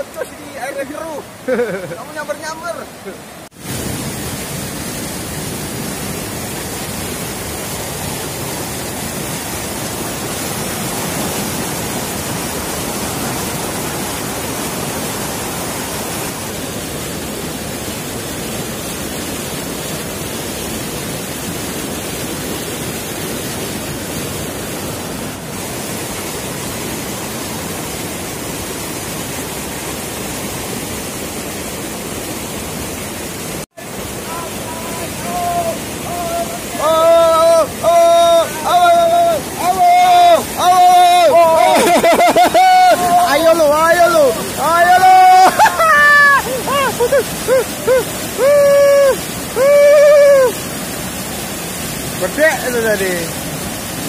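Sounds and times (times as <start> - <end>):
river rushing over rocks: 0.0 - 54.0.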